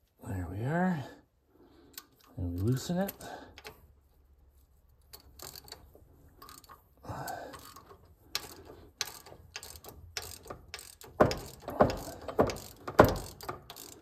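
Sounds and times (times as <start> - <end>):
ratchet wrench clicking: 1.9 - 3.9, 5.0 - 14.0.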